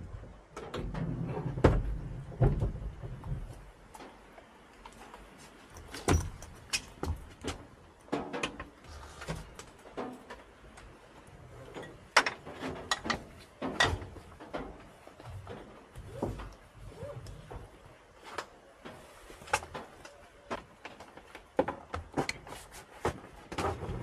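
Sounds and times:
bicycle knocking and rattling against car: 0.5 - 4.1, 5.8 - 10.6, 11.8 - 16.5.

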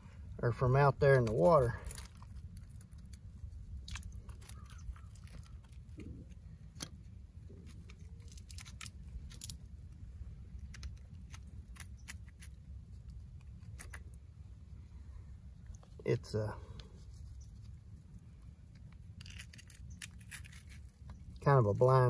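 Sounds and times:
low steady rumble: 0.0 - 22.0
metal trap clicking and crunching: 8.2 - 9.6.

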